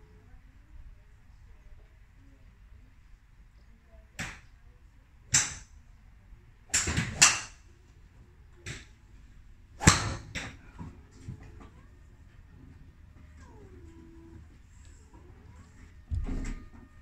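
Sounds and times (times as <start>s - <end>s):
golf clubs striking balls: 5.3s - 5.7s, 6.7s - 7.6s, 9.8s - 10.9s.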